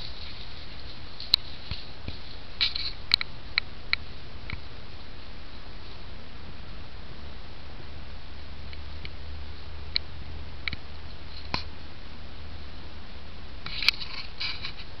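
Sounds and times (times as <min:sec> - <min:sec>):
dry twigs crackling: 0:00.0 - 0:06.2.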